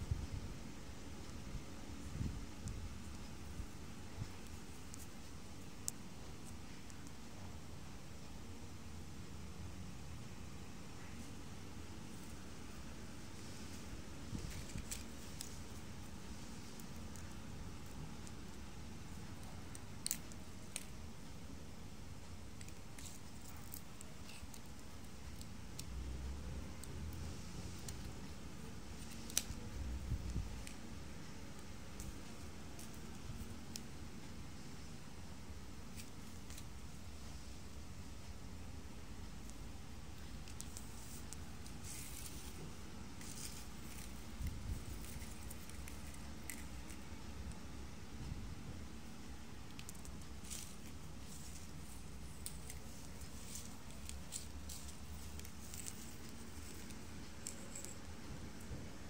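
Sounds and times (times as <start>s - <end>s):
palm fibres ticking and rustling: 13.3s - 34.6s, 38.8s - 48.1s, 49.0s - 58.7s.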